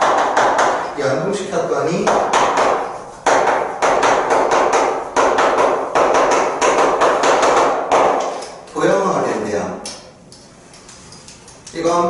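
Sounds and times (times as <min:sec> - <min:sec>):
chalk tapping on chalkboard: 0:00.0 - 0:00.9, 0:02.0 - 0:08.6.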